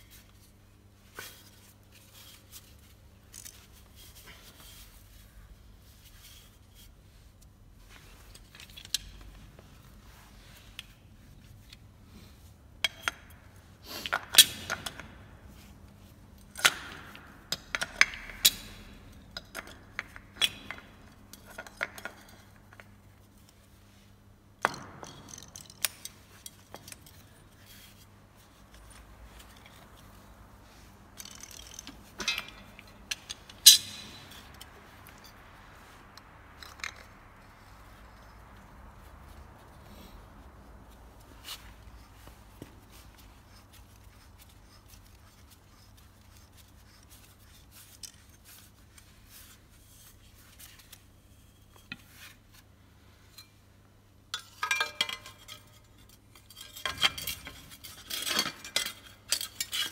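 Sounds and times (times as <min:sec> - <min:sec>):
metal parts clicking and knocking: 0:24.6 - 0:28.0, 0:31.2 - 0:35.4.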